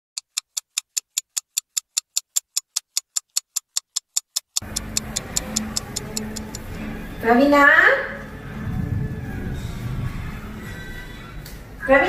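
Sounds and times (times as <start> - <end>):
clock ticking fast: 0.2 - 6.7.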